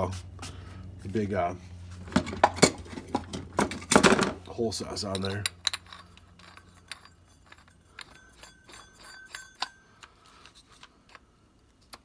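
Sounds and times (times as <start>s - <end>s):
light metallic rings: 4.4s - 11.2s
metal clicks and clinks: 4.4s - 12.0s.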